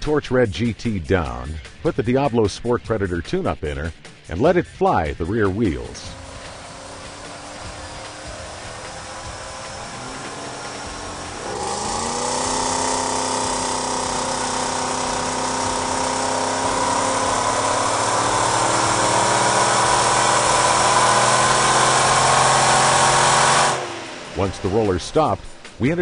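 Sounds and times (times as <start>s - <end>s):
car engine revving at full throttle: 5.2s - 26.0s
supercharger whine: 5.2s - 26.0s.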